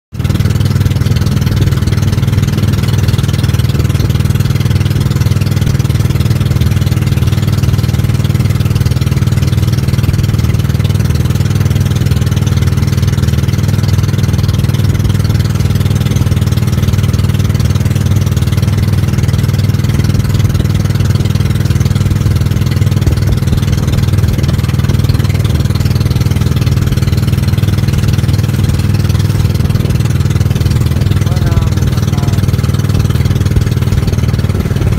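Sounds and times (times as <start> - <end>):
boat engine running: 0.1 - 34.9.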